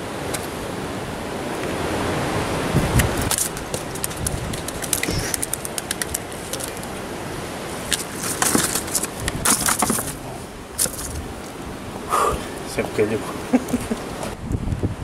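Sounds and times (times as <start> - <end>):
sea surf on rocks: 0.0 - 15.0
wind: 0.0 - 15.0
fish clicking and tapping in bucket: 3.0 - 7.0, 7.8 - 11.3.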